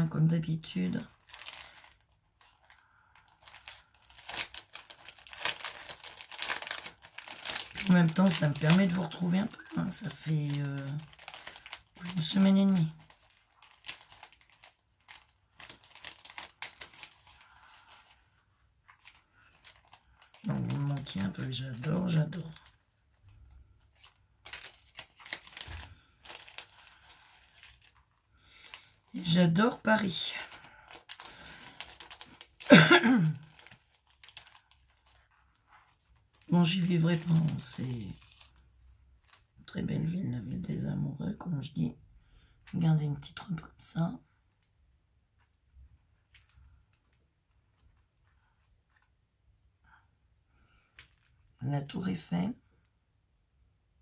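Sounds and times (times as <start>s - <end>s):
wrapping crinkling and rustling: 0.0s - 40.8s, 41.6s - 49.4s, 50.5s - 52.3s
sharp paper crackles: 1.0s - 39.5s, 50.7s - 51.4s.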